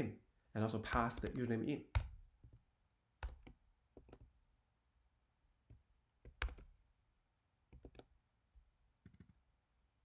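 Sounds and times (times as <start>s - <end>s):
computer keyboard keystrokes: 0.9s - 2.2s, 3.2s - 4.3s, 6.3s - 6.7s, 7.7s - 8.1s.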